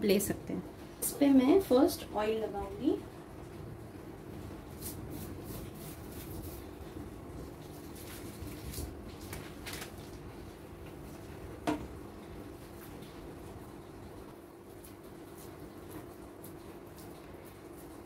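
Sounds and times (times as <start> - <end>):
hand rustling paper: 4.8 - 11.1.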